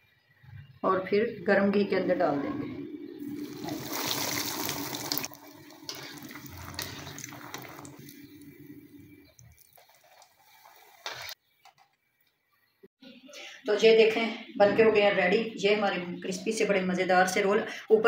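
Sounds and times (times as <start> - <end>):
dough ball sizzling in hot fat: 3.2 - 11.4.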